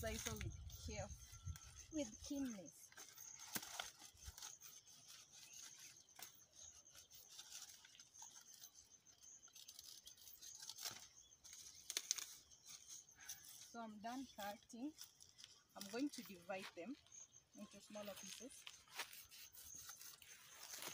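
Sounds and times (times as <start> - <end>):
rustling and scraping of leaves: 0.0 - 20.9.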